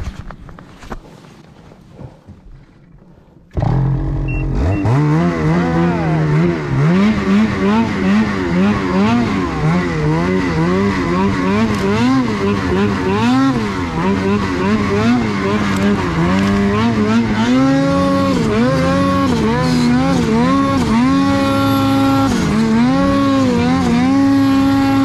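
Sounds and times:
snowmobile engine revving: 0:03.5 - 0:25.0.

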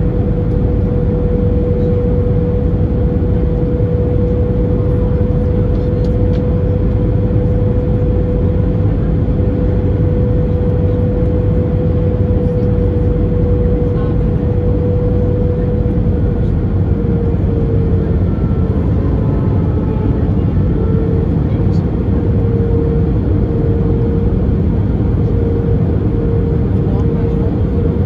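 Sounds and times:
jet engine rumble and airflow: 0:00.0 - 0:28.0.

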